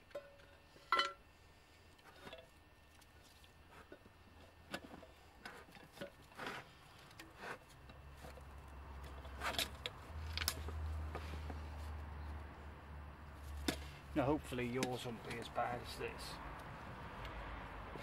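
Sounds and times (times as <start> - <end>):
small metallic clicks and scrapes: 2.0 - 11.6.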